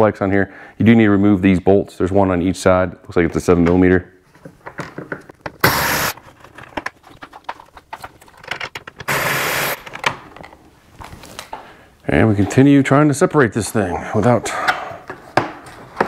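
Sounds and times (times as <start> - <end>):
handling clicks and knocks: 6.2 - 9.1.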